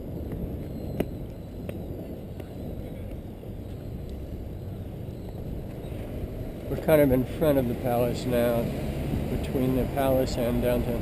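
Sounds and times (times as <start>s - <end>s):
bicycle tyres and wind rumble: 0.0s - 11.0s.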